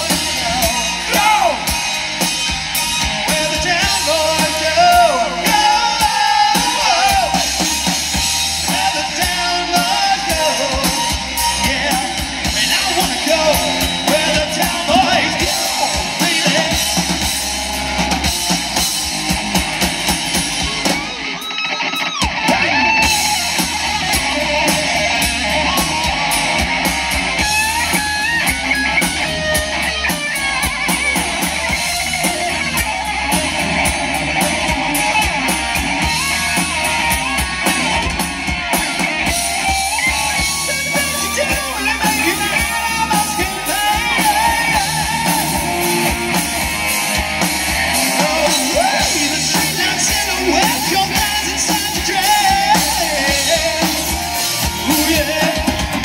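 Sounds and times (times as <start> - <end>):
man singing: 0.0 - 2.0, 3.1 - 7.8, 8.6 - 17.4, 22.5 - 26.3, 40.3 - 46.4, 47.8 - 56.0
electric guitars: 0.0 - 56.0
rock band playing: 0.0 - 56.0.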